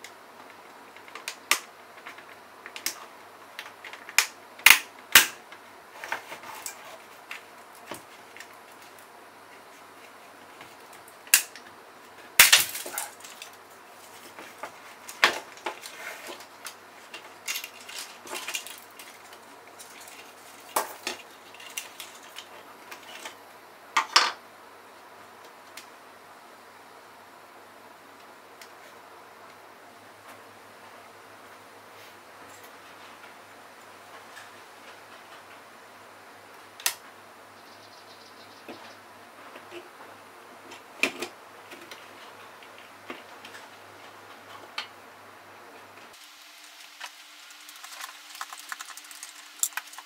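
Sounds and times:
plastic parts clicking: 0:14.6 - 0:23.4, 0:47.0 - 0:50.0.

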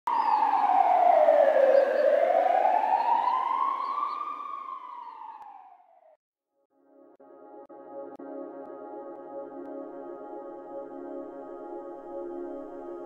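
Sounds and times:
ambulance siren wailing: 0:00.1 - 0:06.1.

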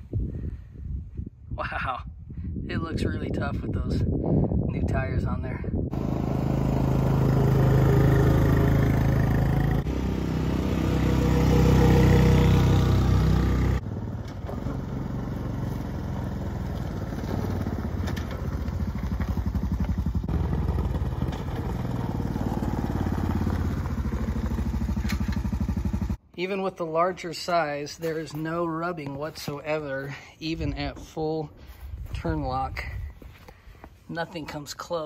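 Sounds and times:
atv engine passing: 0:05.9 - 0:26.2.

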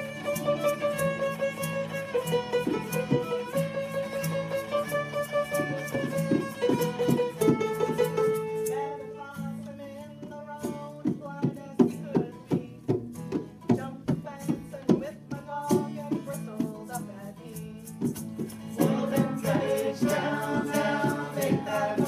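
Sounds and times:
violin playing: 0:00.0 - 0:08.2
acoustic guitar strumming: 0:00.0 - 0:22.0.

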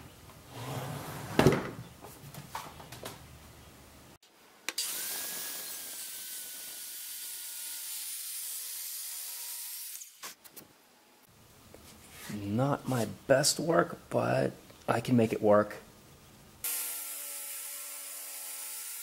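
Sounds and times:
circular saw cutting log: 0:04.7 - 0:10.2.

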